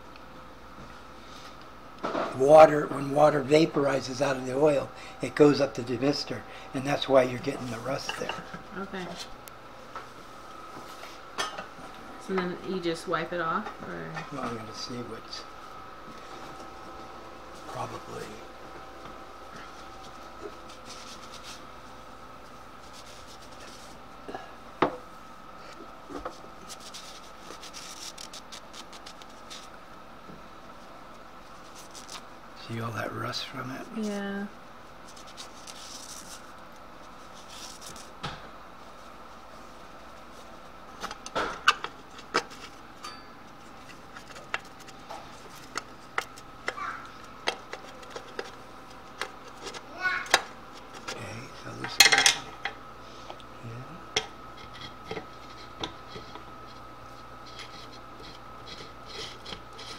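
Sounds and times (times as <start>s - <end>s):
faint steady hum: 0.0s - 59.9s
paper towel rubbing on metal: 26.6s - 29.7s.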